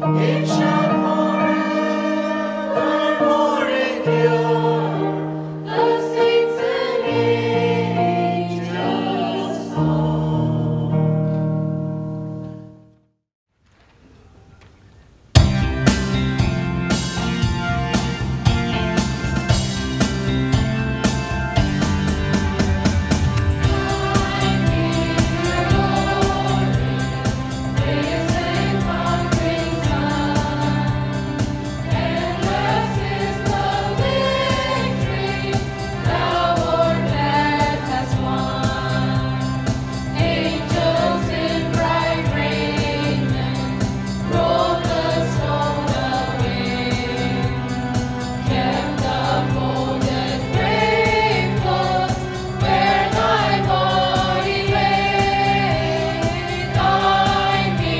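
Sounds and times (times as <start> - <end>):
choir singing a hymn: 0.0 - 11.2, 23.6 - 57.9.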